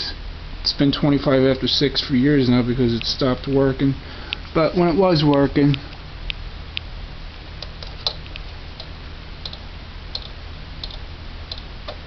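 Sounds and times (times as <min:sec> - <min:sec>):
low steady hum: 0:00.0 - 0:12.0
faint small clicks: 0:07.6 - 0:12.0.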